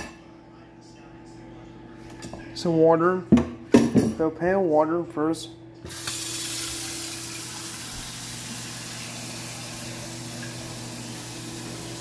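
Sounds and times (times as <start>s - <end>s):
faucet water filling a saucepan: 5.9s - 12.0s.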